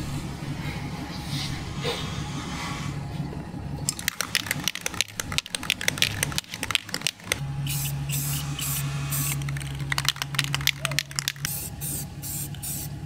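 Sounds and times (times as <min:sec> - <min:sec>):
steady low hum: 0:00.0 - 0:13.0
spray can ball rattling: 0:03.9 - 0:13.0
spray paint hiss: 0:04.1 - 0:13.0.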